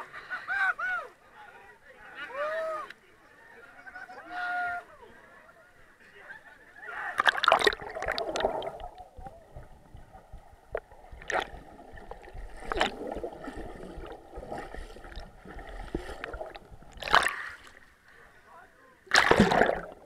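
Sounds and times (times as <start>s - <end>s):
water splashes: 7.1s - 18.0s, 19.1s - 20.0s
muffled underwater gurgling: 7.2s - 17.3s.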